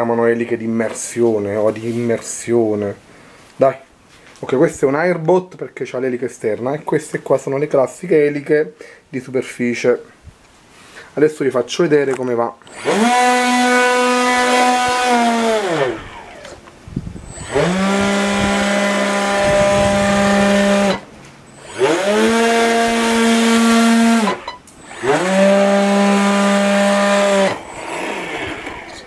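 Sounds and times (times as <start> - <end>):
brushless motor propeller whine: 12.7 - 29.0.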